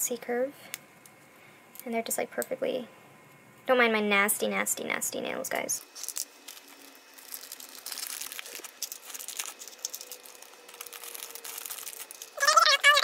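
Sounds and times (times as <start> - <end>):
plastic packaging crinkling: 5.8 - 13.0.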